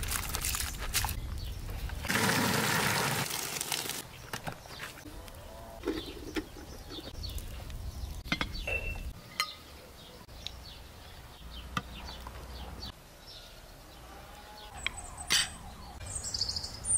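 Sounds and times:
small birds chirping: 4.0s - 16.9s.

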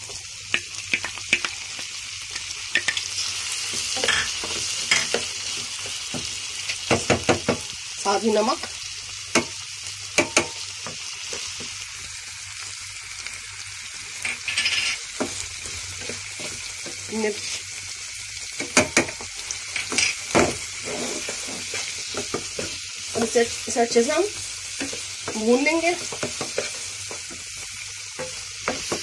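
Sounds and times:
food sizzling in oil: 0.0s - 29.0s
spatula knocking on pan: 6.9s - 7.7s, 10.2s - 11.0s, 28.2s - 29.0s
wooden spatula scraping pan: 19.8s - 24.2s.

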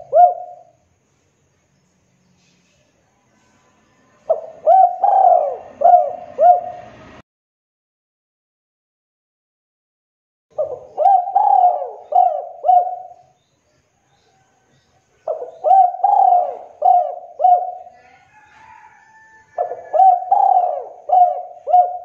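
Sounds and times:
dove cooing: 0.0s - 0.8s, 4.3s - 7.1s, 10.6s - 13.4s, 15.2s - 18.9s, 19.5s - 22.0s.

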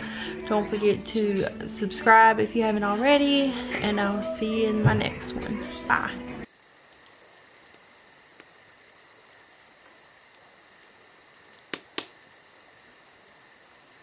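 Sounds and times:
high-pitched insect chirring: 6.4s - 14.0s
sharp clicks: 9.4s - 12.4s.

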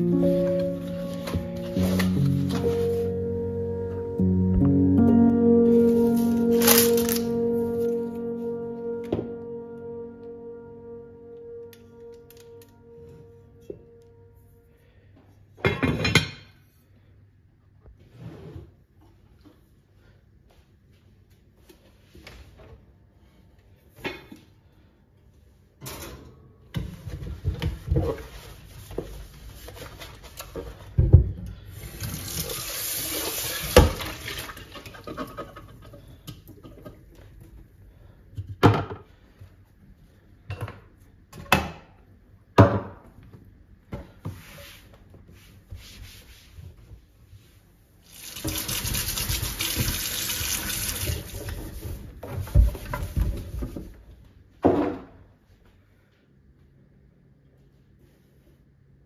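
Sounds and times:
tap water running into sink: 48.2s - 51.6s.

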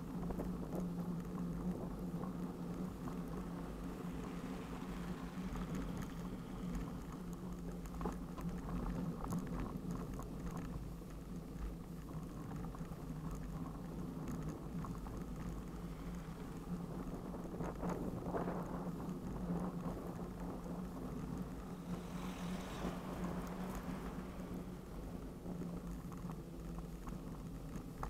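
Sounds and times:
bicycle tyres rolling over snow: 0.0s - 28.0s
car passing: 2.6s - 7.8s, 20.6s - 26.4s.

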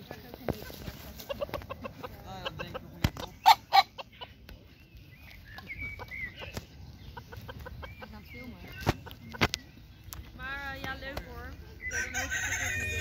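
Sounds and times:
rooster clucking: 0.6s - 4.4s, 6.0s - 8.3s, 11.8s - 13.0s.

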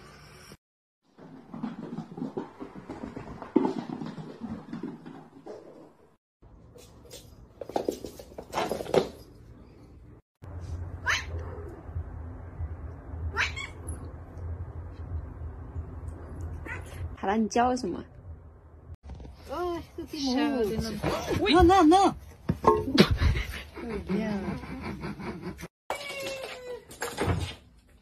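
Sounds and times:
steady low hum: 10.4s - 17.2s.

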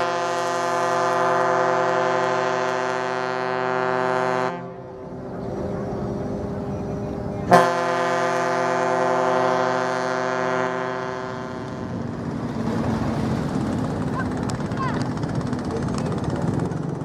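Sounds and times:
ship whistle booming: 0.0s - 4.8s, 7.4s - 11.9s.

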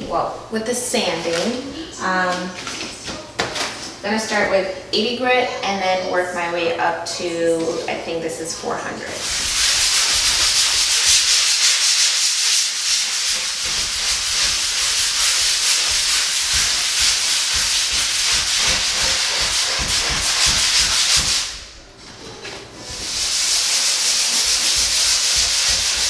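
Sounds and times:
sandpaper sanding wood: 9.1s - 21.6s, 22.9s - 26.0s.

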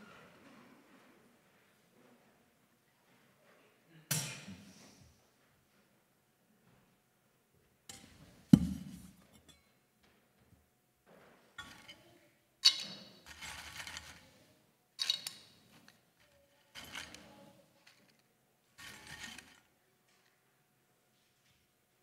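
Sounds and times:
metal vessels clinking and scraping: 12.6s - 14.1s, 15.0s - 15.7s.

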